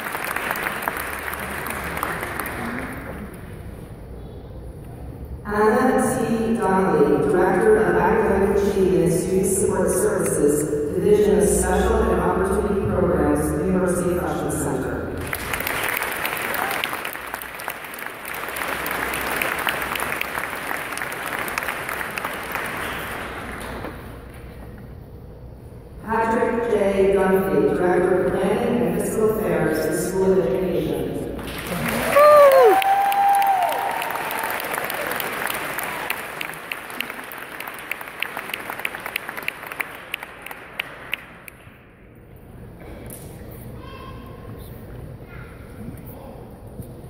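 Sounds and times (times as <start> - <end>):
audience applauding: 0.0 - 3.4, 15.2 - 24.1, 31.4 - 41.6.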